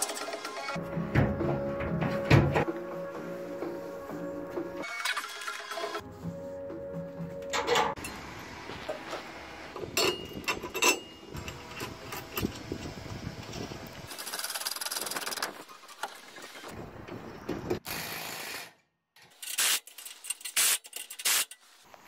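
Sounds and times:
steel bolts clinking and scraping: 0:07.4 - 0:08.2, 0:09.9 - 0:12.5, 0:19.2 - 0:21.8.

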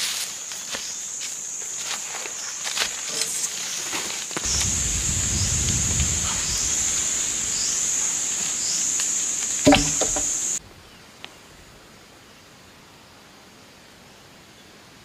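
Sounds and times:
insects droning: 0:00.2 - 0:10.6
thump: 0:09.7 - 0:10.3.

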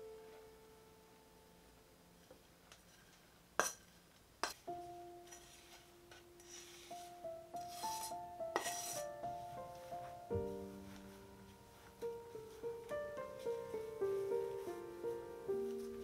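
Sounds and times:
soft plucked background music: 0:04.5 - 0:16.0
knife scraping wooden cutting board: 0:07.7 - 0:09.1.

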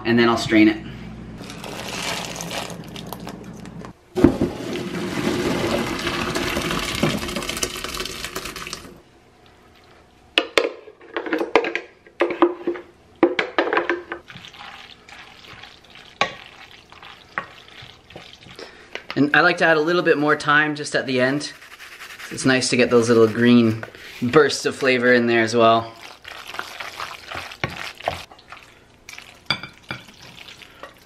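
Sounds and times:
water poured through a strainer: 0:01.4 - 0:03.4, 0:04.6 - 0:09.0, 0:14.2 - 0:18.6, 0:26.0 - 0:29.5.

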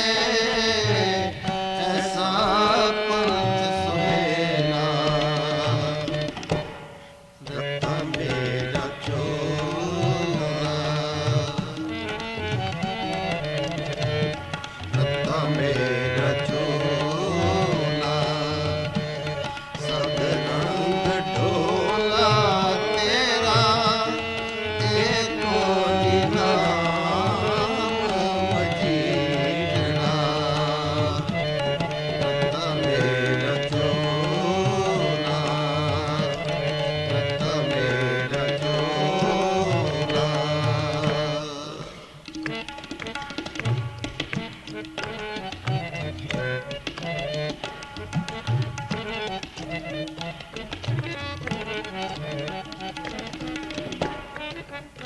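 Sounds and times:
harmonium: 0:00.0 - 0:55.0
tabla rhythm: 0:00.0 - 0:55.0
person singing: 0:07.5 - 0:11.8, 0:15.3 - 0:31.4, 0:32.2 - 0:42.2.

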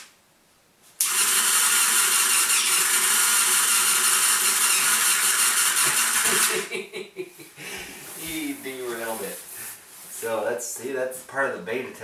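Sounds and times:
small electric motor whirring: 0:01.0 - 0:06.5.

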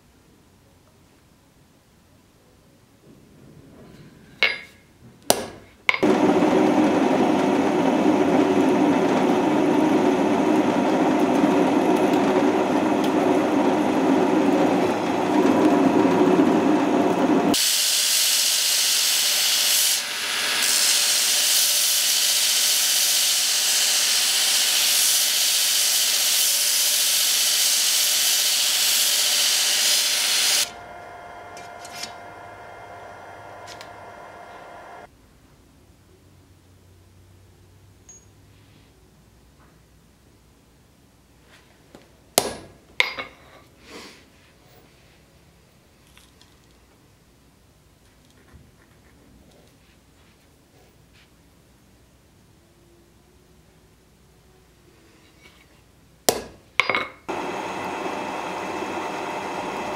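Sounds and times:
power tool running: 0:06.0 - 0:35.1, 0:57.3 - 0:59.9
belt grinder grinding steel: 0:08.3 - 0:35.1.

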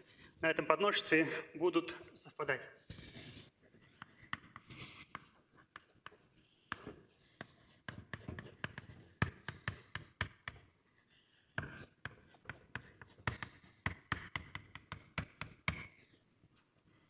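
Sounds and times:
chalk tapping and scraping on blackboard: 0:02.9 - 0:16.2.

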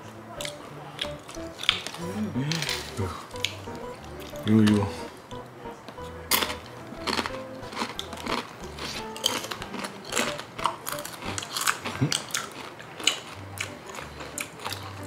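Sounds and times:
tortilla chips crunching: 0:01.0 - 0:03.6, 0:06.3 - 0:15.0.

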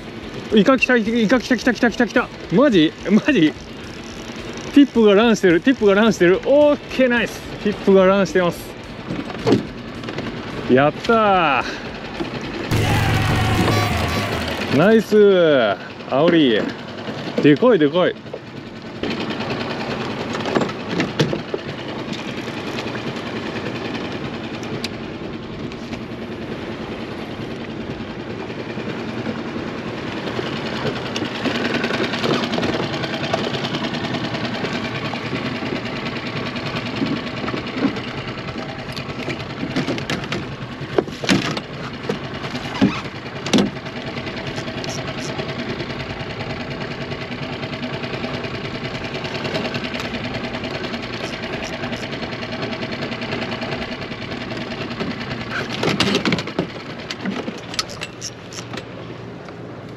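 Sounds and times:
outboard motor idling: 0:00.0 - 0:59.9.

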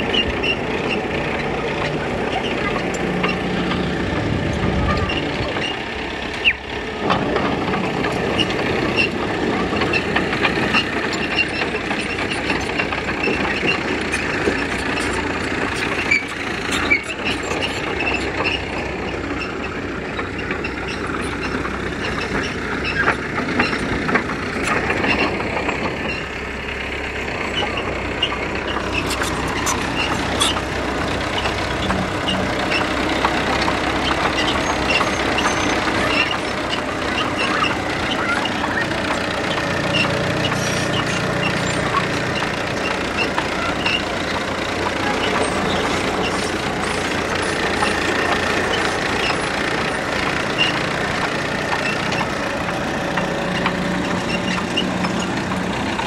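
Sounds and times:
diesel engines droning: 0:00.0 - 0:56.0
clanks and knocks: 0:27.6 - 0:56.0.

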